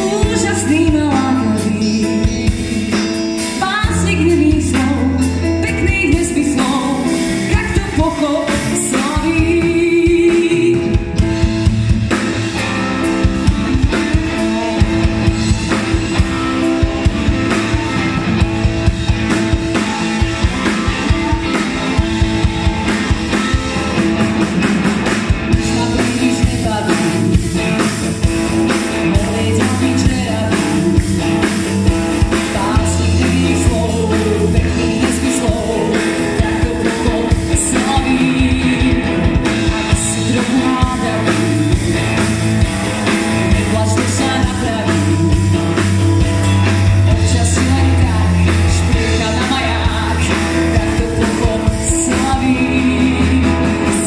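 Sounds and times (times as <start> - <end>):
woman singing: 0.0 - 11.3, 25.5 - 28.0, 28.9 - 42.4, 43.0 - 54.0
pop-rock band playing: 0.0 - 54.0.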